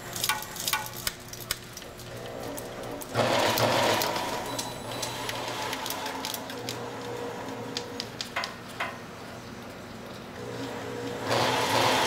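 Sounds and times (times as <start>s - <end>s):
machine motor hum: 2.1s - 8.9s, 9.6s - 12.0s.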